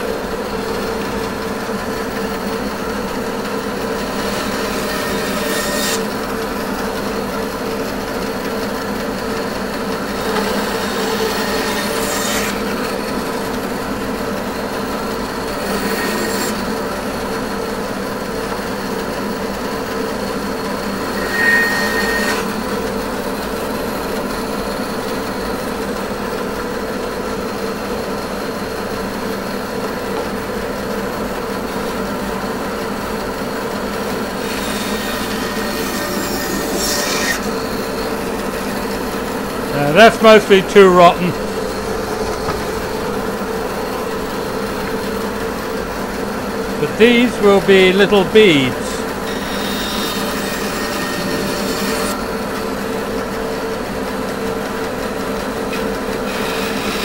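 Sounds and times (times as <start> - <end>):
bandsaw blade cutting wood: 4.0 - 6.5, 10.1 - 12.8, 21.0 - 22.6, 34.3 - 40.1.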